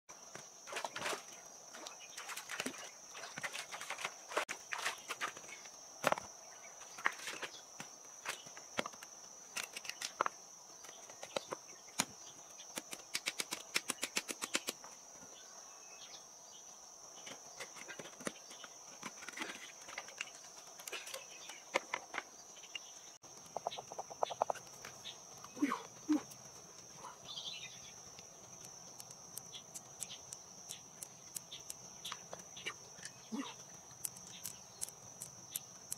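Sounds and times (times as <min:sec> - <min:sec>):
high insect buzz: 0:22.4 - 0:35.9.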